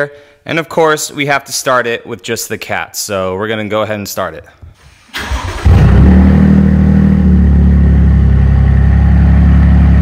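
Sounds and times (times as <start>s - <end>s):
engine cranking and idling: 5.1s - 10.0s.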